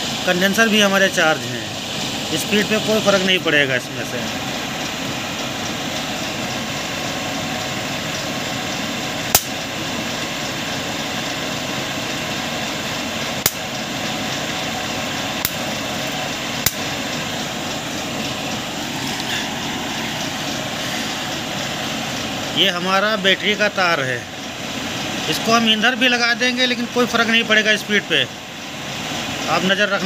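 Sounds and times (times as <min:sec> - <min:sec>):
flywheel rig whirring: 0:00.0 - 0:30.0.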